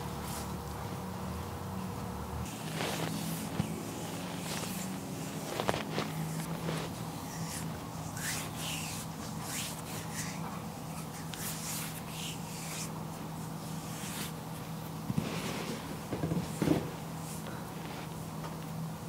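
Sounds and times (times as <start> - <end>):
steady low hum: 0.0 - 19.0
hands stroking skin: 2.5 - 14.5.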